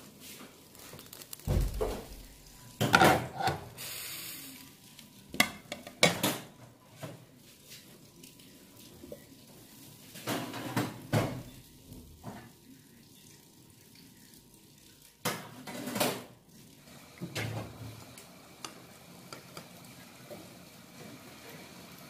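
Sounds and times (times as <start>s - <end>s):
pan and plate clattering: 2.8s - 3.7s.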